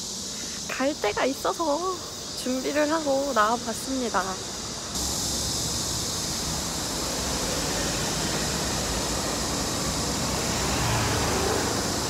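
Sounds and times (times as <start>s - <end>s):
traffic hiss: 0.0s - 12.0s
passing vehicles rumbling: 4.8s - 12.0s.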